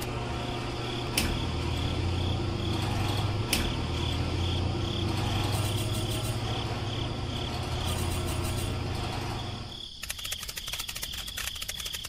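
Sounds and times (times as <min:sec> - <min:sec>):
low steady hum: 0:00.0 - 0:09.8
crickets chirping: 0:00.0 - 0:12.0
sharp clicks: 0:10.0 - 0:12.0.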